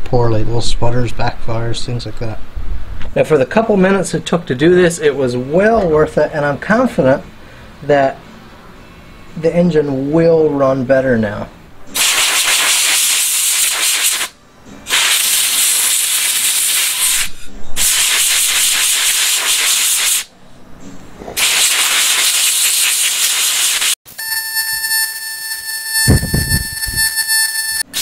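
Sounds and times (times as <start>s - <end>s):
compressed air blow gun hissing: 12.0s - 14.3s, 14.9s - 20.3s, 21.4s - 24.0s
steady high-pitched tone: 24.1s - 28.0s.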